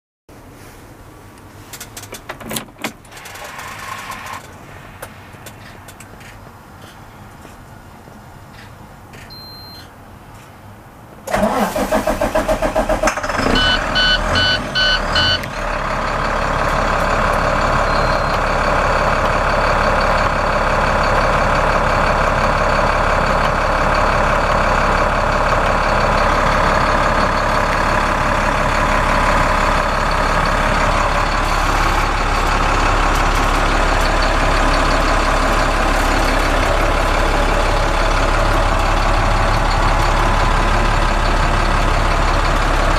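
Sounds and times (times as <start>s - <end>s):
diesel engine starter cranking: 1.7s - 4.6s, 11.2s - 42.9s
diesel engine idling: 3.0s - 42.9s
dashboard warning beeps: 9.2s - 9.9s, 13.5s - 15.5s, 17.9s - 18.4s.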